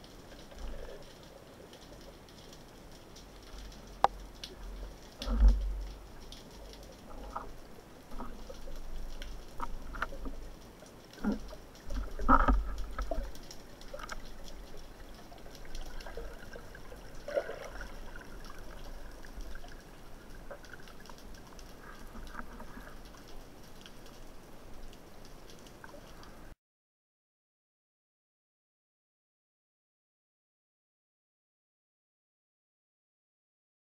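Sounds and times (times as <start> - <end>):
underwater water wash: 0.0 - 26.6.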